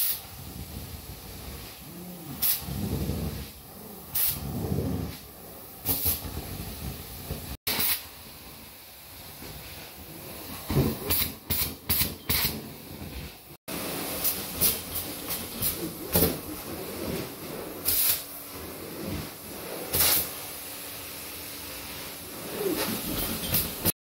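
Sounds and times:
loud hissing bursts: 0:00.0 - 0:12.6, 0:17.8 - 0:18.4, 0:19.8 - 0:23.9.

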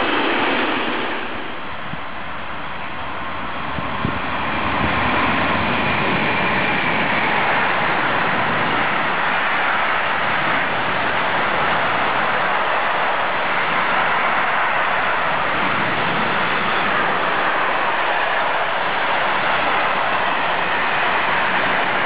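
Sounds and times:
electric locomotive passing: 0:00.0 - 0:22.0
train wheels on rails: 0:00.0 - 0:22.0.

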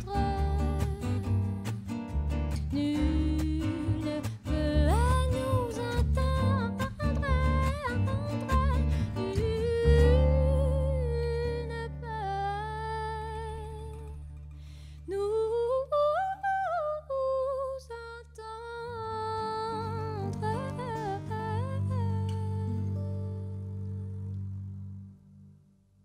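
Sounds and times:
bowed double bass: 0:00.0 - 0:26.0
woman humming a melody: 0:02.8 - 0:14.2.

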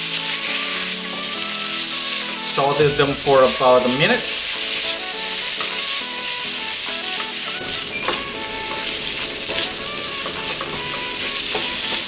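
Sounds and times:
vegetables sizzling in hot oil: 0:00.0 - 0:12.0
wooden spatula stirring in wok: 0:01.9 - 0:12.0.

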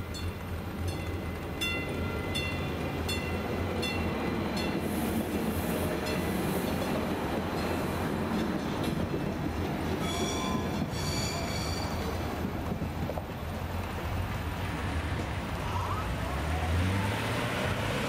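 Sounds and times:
railroad crossing bell ringing: 0:00.0 - 0:05.0, 0:06.0 - 0:06.5, 0:10.0 - 0:12.2
train rumbling: 0:00.0 - 0:18.0.

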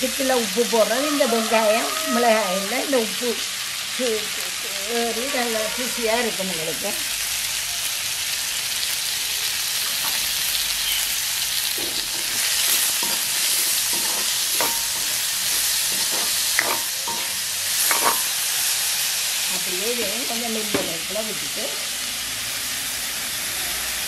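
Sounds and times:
onions sizzling in oil: 0:00.0 - 0:24.0
spatula scraping a pan: 0:11.6 - 0:18.7.

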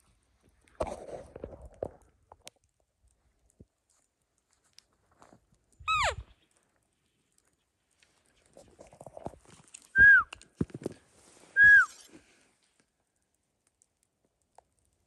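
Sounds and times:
rustling: 0:03.1 - 0:13.9.

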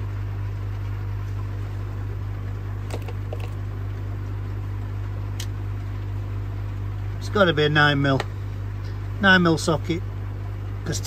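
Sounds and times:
low mechanical hum: 0:00.0 - 0:11.0.

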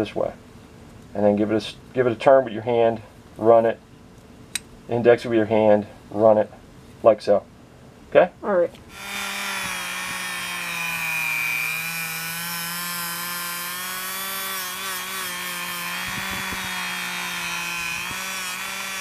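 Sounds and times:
abrasive disc rubbing on metal: 0:08.9 - 0:19.0
rotary tool motor whine: 0:08.9 - 0:19.0.

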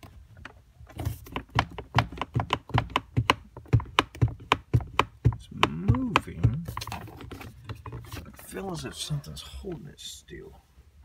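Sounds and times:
plastic console knocking and clicking: 0:00.0 - 0:08.6.

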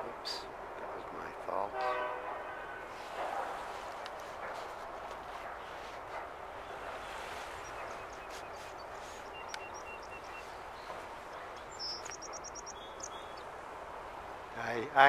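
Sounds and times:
outdoor ambient noise: 0:00.0 - 0:15.0
faint bird calls: 0:06.6 - 0:13.5.

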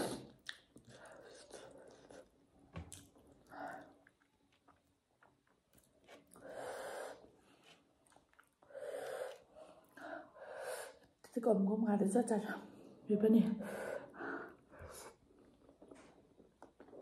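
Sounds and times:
chewing with wet clicks: 0:00.3 - 0:06.4, 0:08.0 - 0:08.7, 0:15.4 - 0:17.0.

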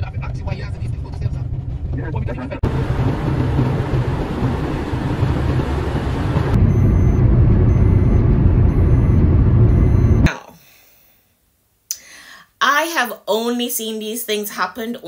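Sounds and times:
car road and engine noise: 0:00.0 - 0:10.3.

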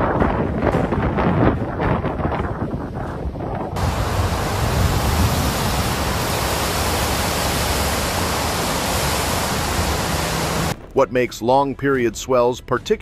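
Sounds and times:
wind buffeting microphone: 0:00.0 - 0:11.0
river rushing in flood: 0:03.8 - 0:10.8.

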